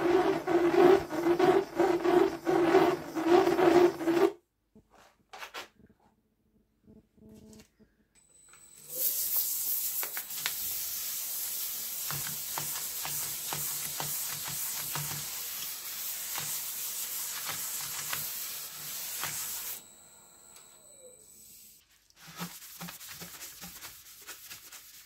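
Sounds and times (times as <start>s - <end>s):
sandpaper hissing on spinning wood: 0.0s - 4.4s, 9.0s - 19.8s.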